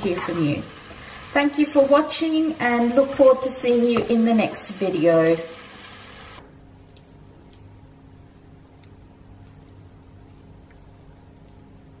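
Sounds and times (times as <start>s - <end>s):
faint low hum: 6.4s - 12.0s.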